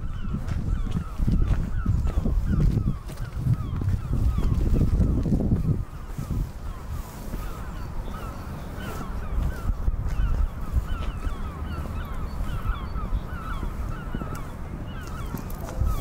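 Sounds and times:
flock of birds chirping: 0.0 - 16.0.

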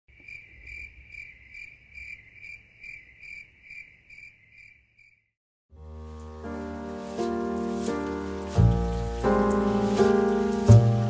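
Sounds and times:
insect chirping: 0.1 - 5.3.

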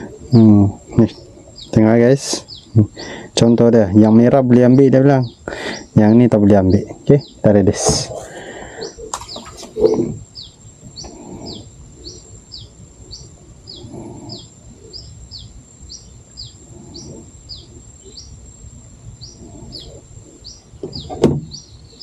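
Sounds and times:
bird chirping: 0.0 - 22.0
sharp knock: 20.8 - 21.6.

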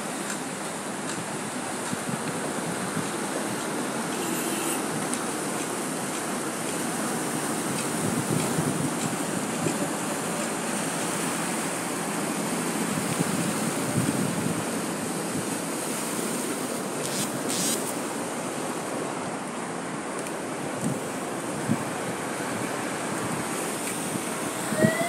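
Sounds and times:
sea wind: 0.0 - 25.0
surf: 0.0 - 25.0
wind buffeting microphone: 1.1 - 3.9, 4.9 - 16.3, 20.6 - 25.0
high hiss: 17.0 - 18.1.

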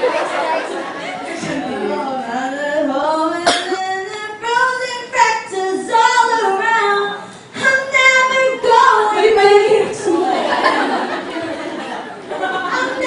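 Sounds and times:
woman singing: 1.4 - 10.3.

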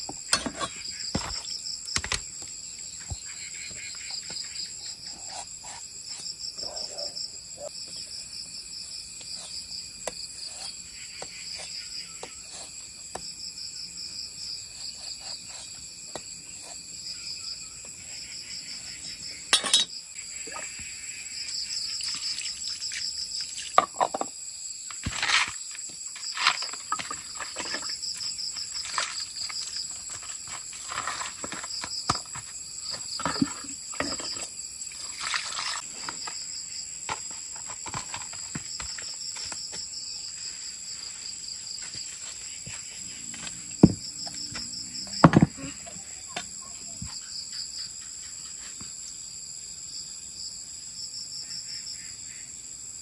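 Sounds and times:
knocks scrapes and rustles: 0.0 - 2.2, 24.9 - 36.4, 37.1 - 39.8
insects trilling: 0.0 - 53.0.

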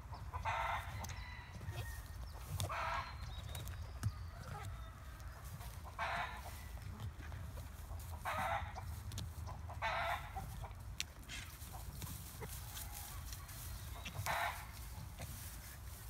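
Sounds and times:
chicken squawking clucks: 2.6 - 3.2, 5.6 - 6.6, 7.8 - 15.8.

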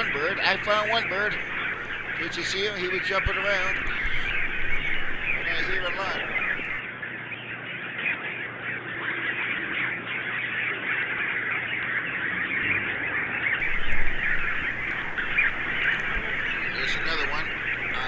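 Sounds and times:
squawking bird calls: 0.0 - 6.8, 13.5 - 18.0.

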